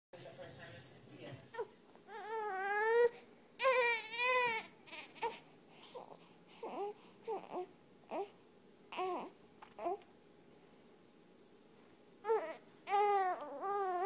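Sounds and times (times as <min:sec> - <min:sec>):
infant crying: 0:01.6 - 0:10.0, 0:12.2 - 0:14.0.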